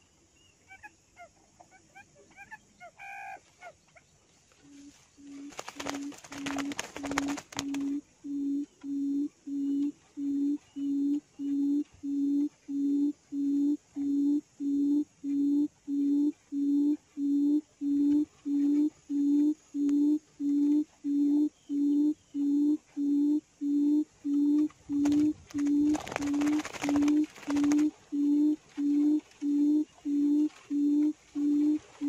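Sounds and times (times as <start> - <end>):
quail call through speaker: 0.7 - 3.8.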